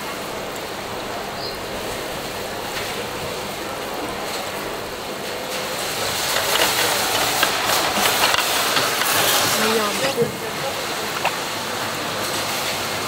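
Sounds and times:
water bubbling in aerated tank: 0.0 - 9.1.

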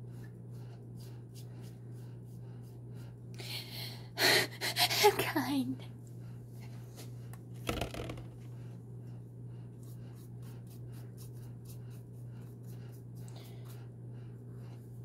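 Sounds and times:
steady low hum: 0.0 - 15.0
paintbrush scratching on mask: 9.8 - 13.8.

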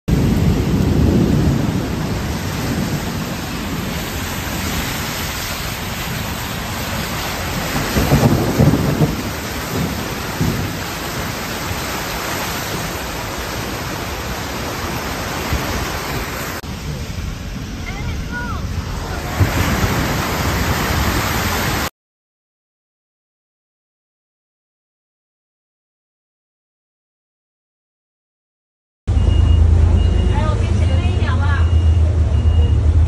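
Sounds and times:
floodwater rushing and splashing: 0.1 - 21.9
heavy rain on a car: 0.1 - 21.9.

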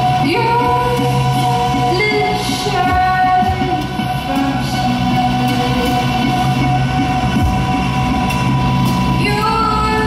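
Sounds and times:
woman singing: 0.0 - 5.6, 9.2 - 10.0.

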